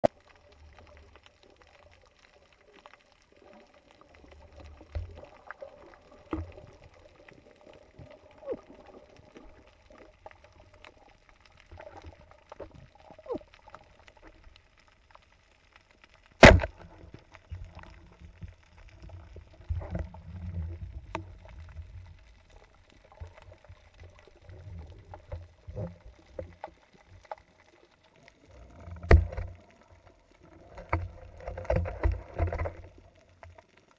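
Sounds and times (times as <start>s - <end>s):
low underwater rumbles: 0.0s - 33.9s
sharp loud crack: 16.4s - 16.7s
small clicks and knocks: 28.7s - 33.8s.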